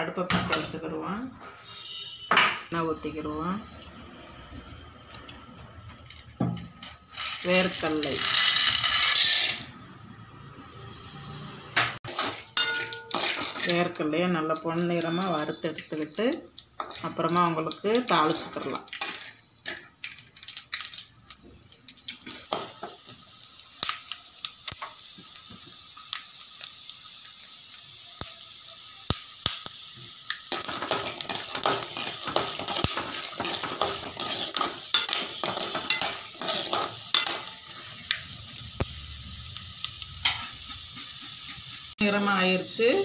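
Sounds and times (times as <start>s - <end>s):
peanuts frying in sizzling oil: 2.6s - 43.0s
oil crackles and pops: 18.9s - 41.9s.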